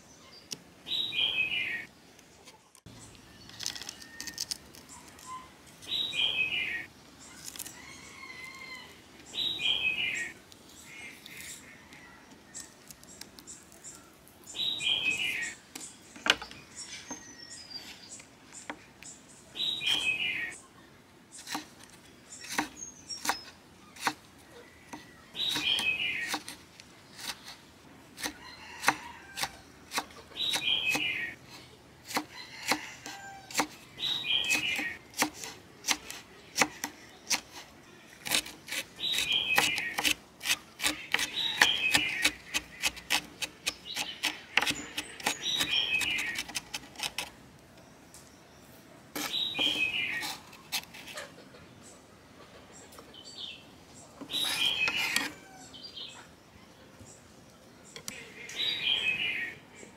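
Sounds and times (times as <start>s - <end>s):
bird chirping: 0.0s - 27.6s, 28.2s - 31.7s, 32.3s - 59.9s
knife chopping on wooden board: 34.4s - 37.5s, 38.2s - 47.3s.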